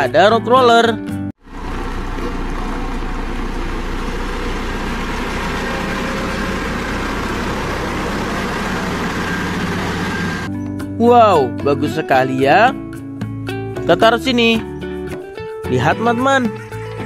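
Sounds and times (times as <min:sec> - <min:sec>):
diesel engine running: 0:01.4 - 0:10.5.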